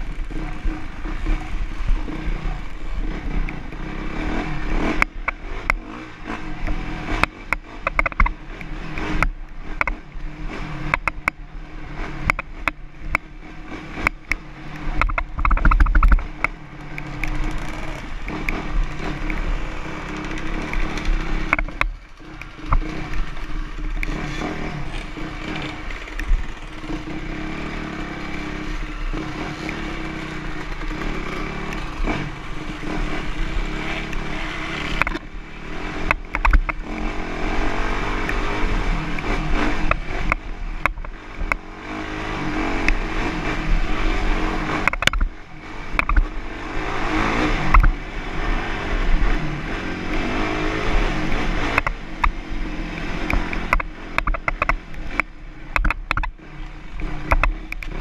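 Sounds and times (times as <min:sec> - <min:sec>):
wind rumble on microphone: 0:00.0 - 0:41.6
dirt bike engine revving: 0:00.0 - 0:58.0
sharp clicks and knocks: 0:04.8 - 0:05.9, 0:06.6 - 0:11.4, 0:12.2 - 0:13.3, 0:14.0 - 0:27.4, 0:33.9 - 0:35.3, 0:36.0 - 0:37.2, 0:39.1 - 0:41.6, 0:44.6 - 0:46.3, 0:47.7 - 0:48.0, 0:51.7 - 0:58.0.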